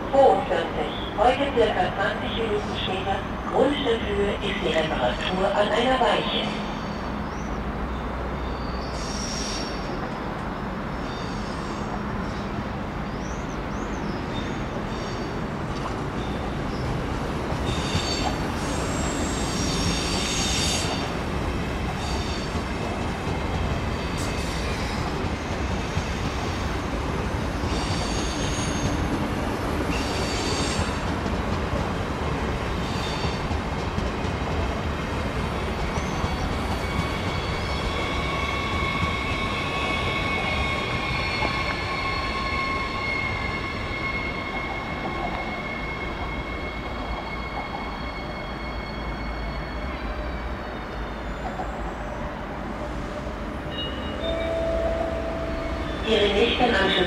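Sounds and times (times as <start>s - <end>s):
train rumbling on rails: 0.0s - 57.0s
train wheels squealing: 6.6s - 7.6s, 8.4s - 10.0s, 10.6s - 12.5s, 13.2s - 15.4s, 17.6s - 21.1s, 22.0s - 22.6s, 27.5s - 29.1s, 29.8s - 31.1s, 32.7s - 33.5s, 35.8s - 56.9s.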